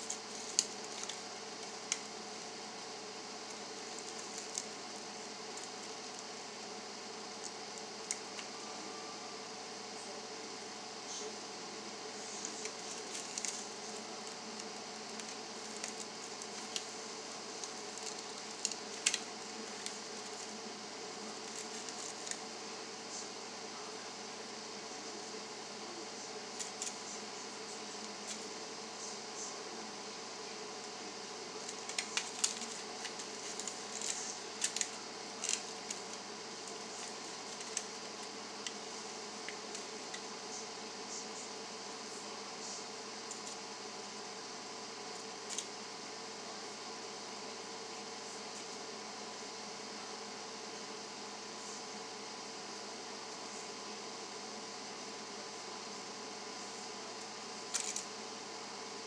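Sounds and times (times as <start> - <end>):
room noise hiss and hum: 0.0 - 59.0
hands handling plastic mesh: 31.7 - 38.8.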